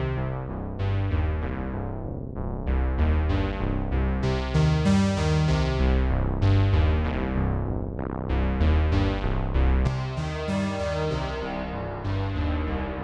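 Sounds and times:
synth bass line: 0.0 - 13.0
synth arpeggio plucked notes: 9.9 - 13.0.

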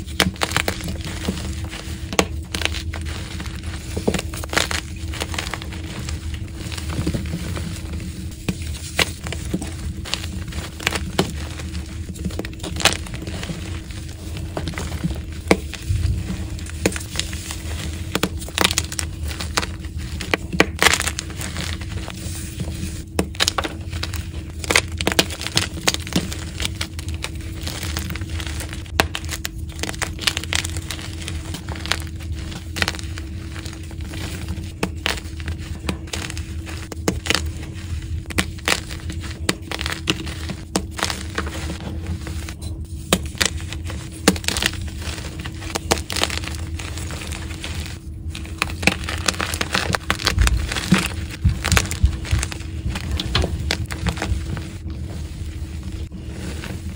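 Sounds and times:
chalk blocks crunching in hands: 0.0 - 56.9.

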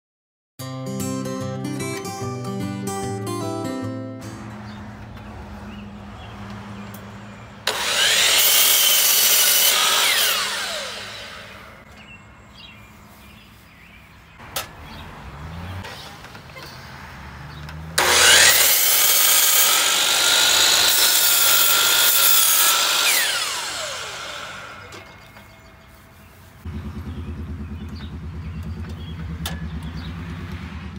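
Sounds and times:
miter saw cutting wood: 7.6 - 11.8, 17.7 - 25.8.

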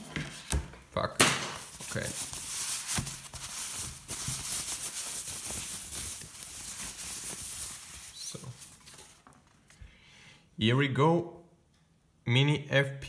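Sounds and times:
plastic wrapping crinkling: 1.6 - 9.7.

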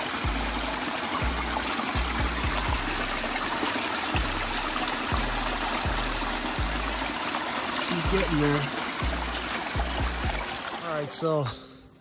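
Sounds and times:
creek water trickling over rocks: 0.0 - 11.6
music bass notes pulsing: 0.2 - 3.6, 4.2 - 7.2, 8.0 - 10.5.

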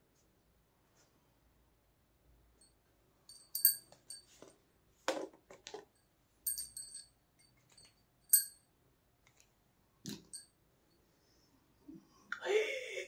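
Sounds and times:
metal object ringing clink: 2.6 - 4.4, 6.0 - 8.7.

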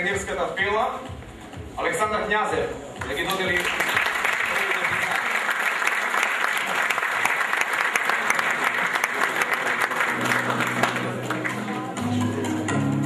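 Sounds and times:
music: 0.0 - 13.0
audience applauding: 3.0 - 11.9.

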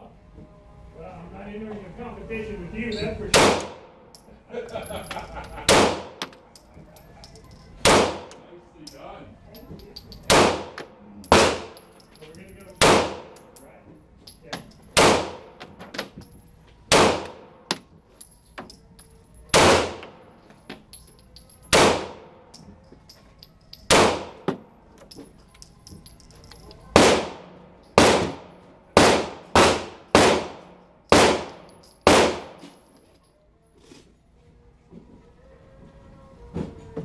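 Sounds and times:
pistol gunshots echoing: 3.3 - 4.1, 5.6 - 6.4, 7.8 - 8.4, 10.2 - 12.0, 12.8 - 13.6, 14.9 - 15.8, 16.9 - 17.8, 19.5 - 20.3, 21.6 - 22.6, 23.8 - 24.6, 26.9 - 32.7
faint gunshots: 16.9 - 17.6, 27.0 - 32.6.

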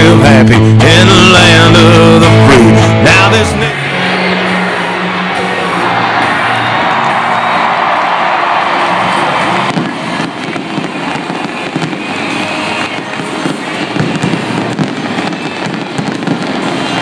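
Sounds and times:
fireworks crackling and popping: 8.4 - 17.0.

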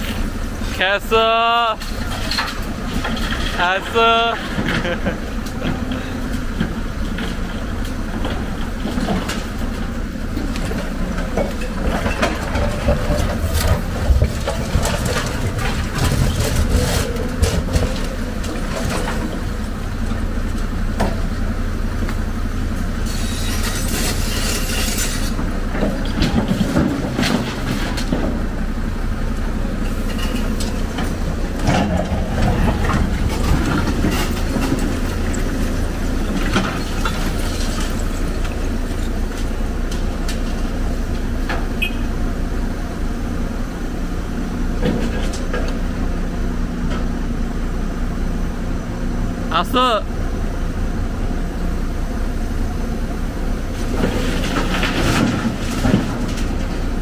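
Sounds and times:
diesel engine running: 0.0 - 57.0
scrap metal clanking: 23.0 - 28.4.

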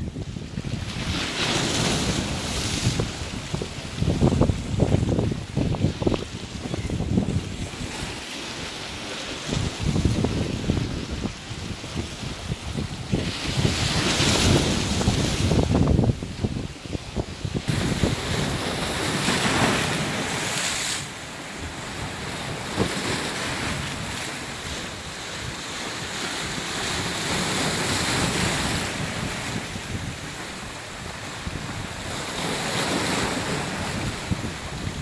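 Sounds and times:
wind buffeting microphone: 0.0 - 8.2, 9.4 - 20.8, 21.6 - 35.0
surf breaking on rocks: 17.6 - 35.0.

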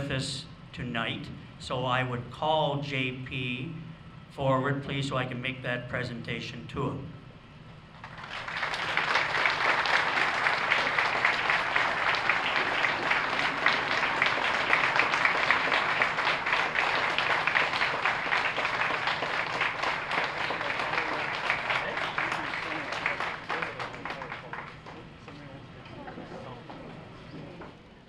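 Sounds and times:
large audience applauding: 8.0 - 25.4.

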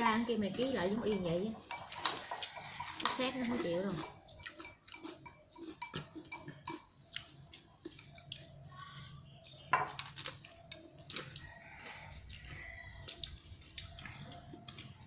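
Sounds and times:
utensils clinking on plates: 1.0 - 7.0.

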